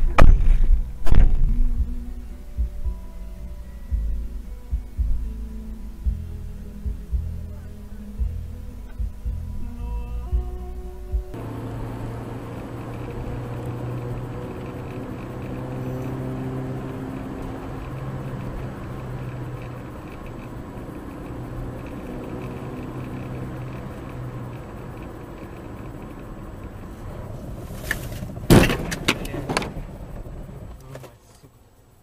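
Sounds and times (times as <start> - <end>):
loud car collision bang: 0.0 - 1.4, 28.2 - 30.0
car engine running: 0.0 - 31.2.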